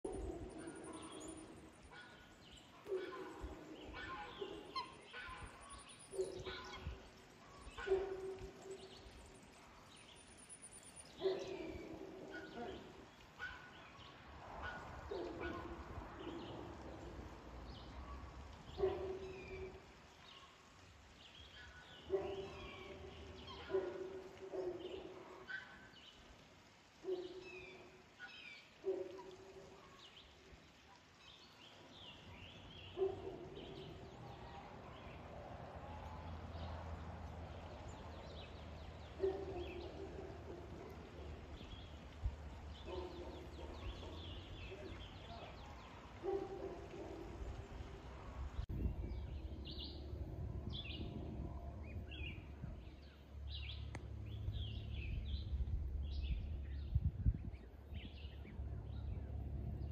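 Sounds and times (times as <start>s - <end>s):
swans calling: 1.5s - 8.2s.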